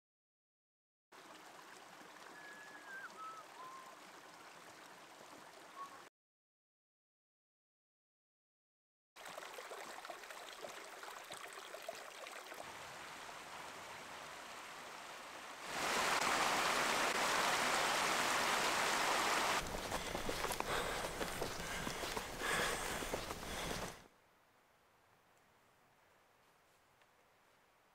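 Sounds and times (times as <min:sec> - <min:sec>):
creek water rushing over stones: 0:01.2 - 0:06.0, 0:09.2 - 0:24.0.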